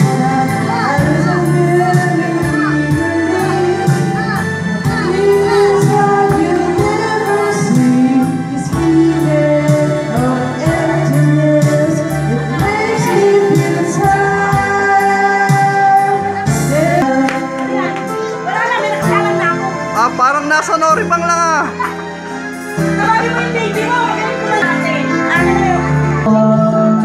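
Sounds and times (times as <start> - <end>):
woman singing: 0.0 - 19.7, 23.0 - 27.0
instruments with steady beat: 21.0 - 26.1.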